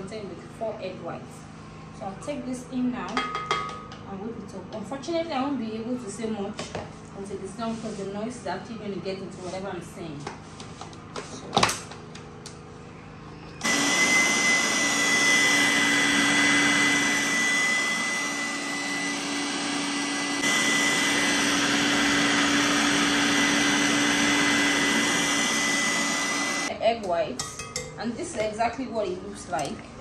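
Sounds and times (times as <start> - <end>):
stand mixer whining: 13.3 - 26.7.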